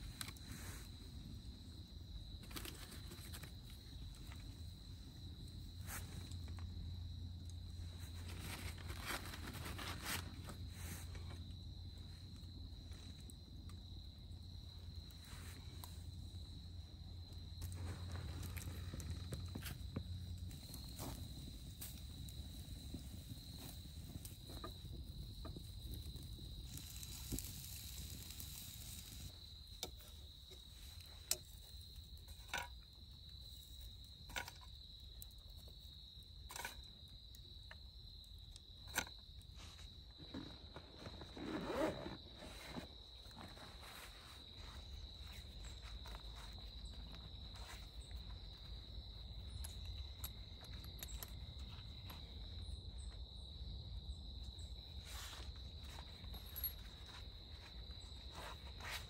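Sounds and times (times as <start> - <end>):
rustle: 7.8 - 11.5, 38.9 - 48.8, 54.5 - 59.0.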